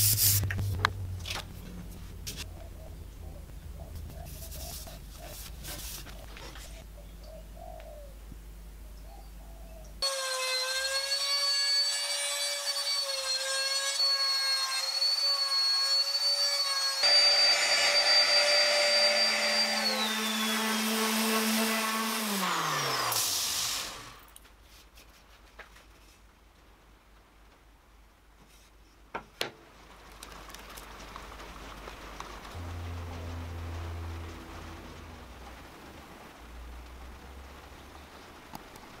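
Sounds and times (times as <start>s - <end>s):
trim router whining: 10.0s - 24.2s
router motor winding down: 14.1s - 24.2s.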